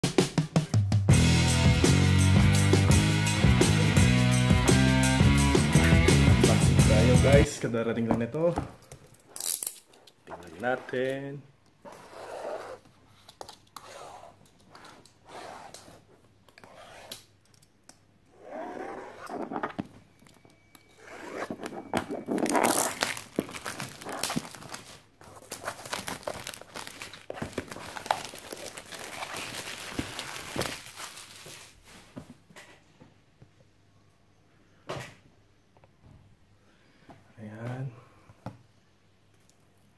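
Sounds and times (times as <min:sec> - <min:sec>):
plastic wrap crinkling and tearing: 0:21.2 - 0:32.1.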